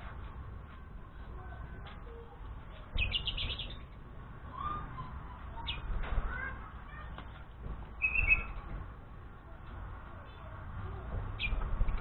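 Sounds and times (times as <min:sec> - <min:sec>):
high bird chirps: 0:03.0 - 0:03.8, 0:08.0 - 0:08.6.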